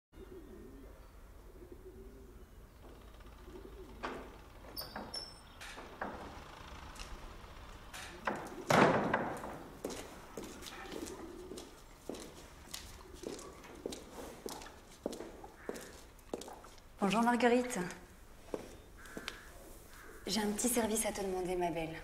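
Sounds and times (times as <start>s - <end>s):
pigeons cooing: 0.2s - 4.8s, 8.1s - 8.8s, 10.2s - 13.9s
light knocks and squeaks: 2.8s - 6.6s
heavy barn door banging: 7.9s - 9.9s.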